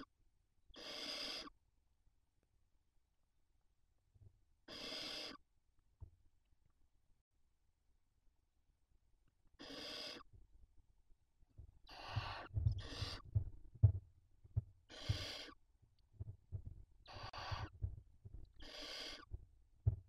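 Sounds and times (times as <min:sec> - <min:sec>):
owl chicks hissing calls: 0:00.8 - 0:01.6, 0:04.7 - 0:05.4, 0:09.6 - 0:10.3, 0:11.9 - 0:13.3, 0:14.9 - 0:15.6, 0:17.0 - 0:17.8, 0:18.5 - 0:19.3.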